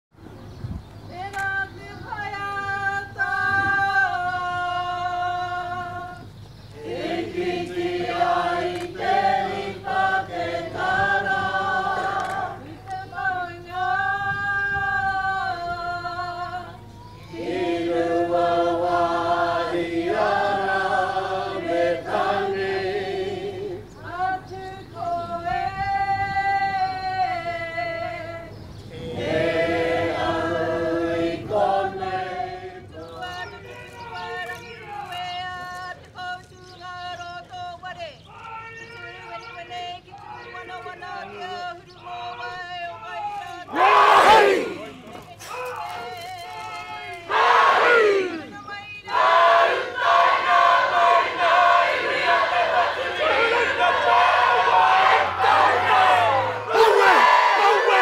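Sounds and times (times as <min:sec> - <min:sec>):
choir singing unaccompanied: 0:01.2 - 0:35.0, 0:38.8 - 0:45.2, 0:46.6 - 0:58.0.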